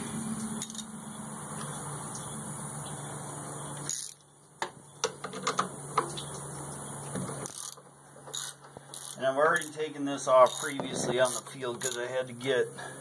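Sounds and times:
socket ratchet clicking: 3.9s - 4.2s, 7.4s - 9.8s, 10.4s - 12.0s.

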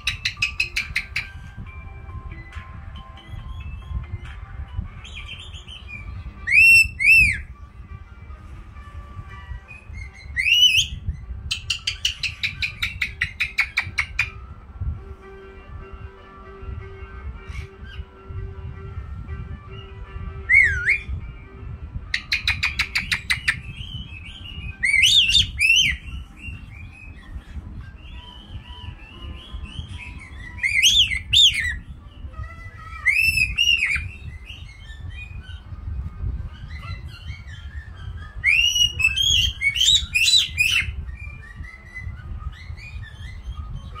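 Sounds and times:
parrot whistling: 0.0s - 1.5s, 5.0s - 7.6s, 9.6s - 14.5s, 19.7s - 21.2s, 22.1s - 31.9s, 32.6s - 35.8s, 36.4s - 44.0s.

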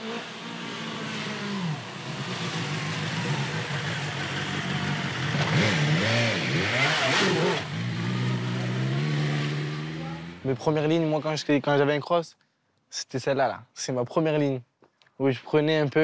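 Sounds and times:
motorcycle engine revving: 0.0s - 10.6s.

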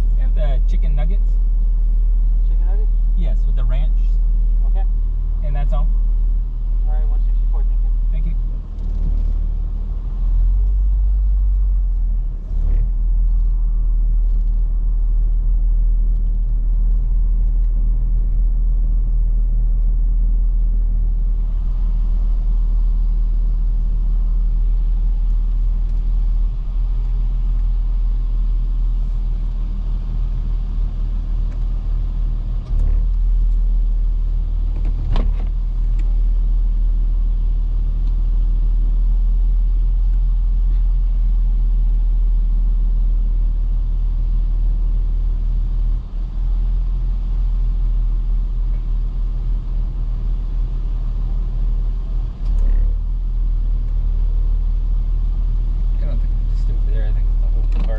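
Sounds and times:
engine and road rumble: 0.0s - 57.9s.

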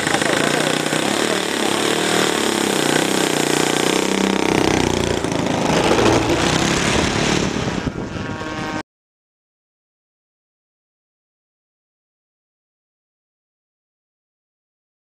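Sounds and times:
model aircraft engine running: 0.0s - 8.8s.

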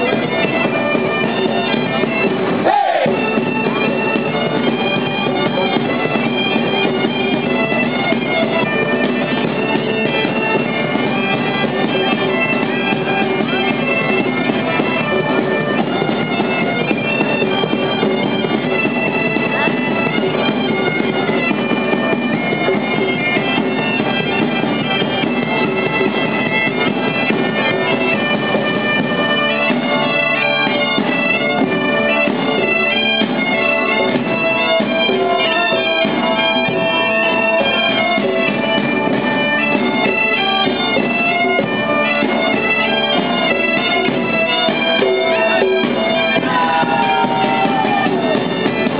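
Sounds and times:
drum beat: 0.0s - 30.0s, 43.2s - 48.9s
bagpipes playing folk tune: 0.0s - 48.9s.

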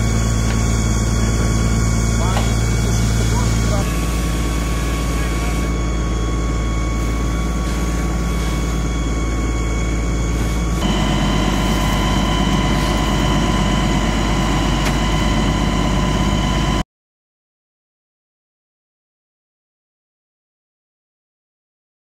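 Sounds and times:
diesel engine and water pump humming: 0.0s - 16.8s.

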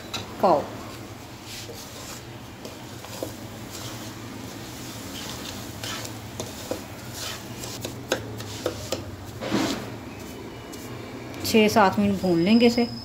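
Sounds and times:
wooden spatula scraping a pot: 1.4s - 10.9s.

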